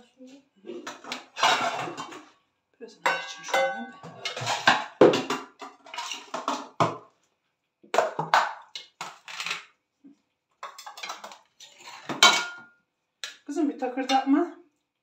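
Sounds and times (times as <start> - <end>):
ceramic plates clinking: 0.8 - 2.3, 3.0 - 6.8, 12.0 - 12.7.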